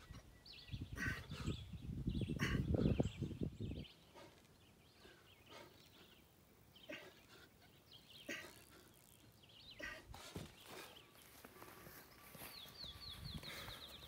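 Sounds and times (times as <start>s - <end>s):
distant bird chirps: 0.0s - 14.0s.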